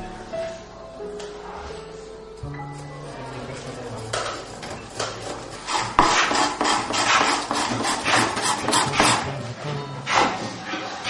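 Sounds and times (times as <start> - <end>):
steady tones: 0.0 - 10.2
hand tools rasping wood: 3.2 - 9.4.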